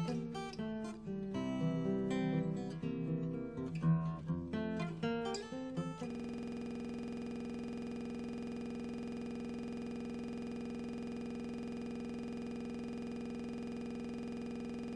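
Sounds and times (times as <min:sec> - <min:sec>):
low electronic buzz: 0:05.8 - 0:14.9.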